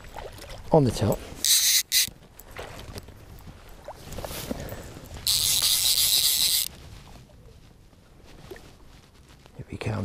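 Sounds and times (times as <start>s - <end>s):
fly reel ratchet buzzing: 1.4s - 2.1s, 5.2s - 6.7s.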